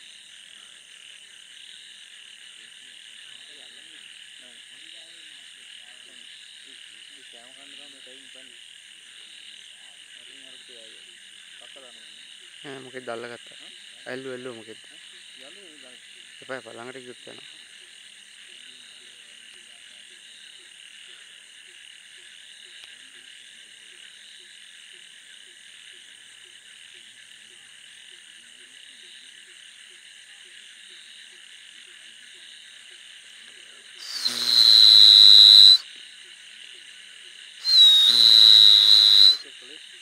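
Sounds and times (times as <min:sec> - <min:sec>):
frogs croaking: 0:00.0 - 0:40.0
insects chirping: 0:00.0 - 0:40.0
loud hissing bursts with whistle: 0:33.9 - 0:36.0, 0:37.6 - 0:39.8.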